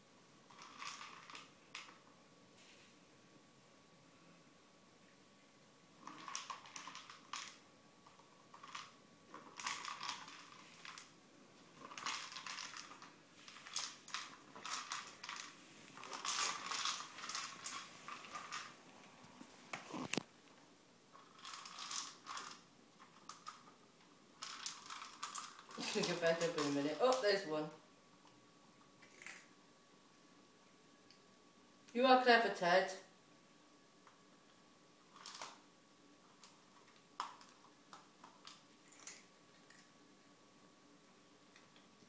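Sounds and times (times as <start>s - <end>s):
treat ball rattling on tiles: 0.5s - 2.0s, 6.0s - 18.8s, 21.1s - 23.7s, 24.4s - 27.3s, 35.1s - 35.6s, 36.4s - 39.8s.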